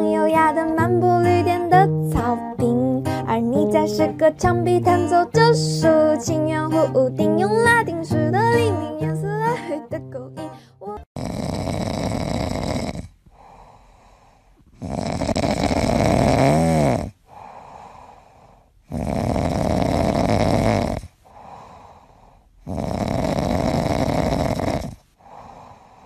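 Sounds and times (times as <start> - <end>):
cat snoring: 11.1 - 26.0.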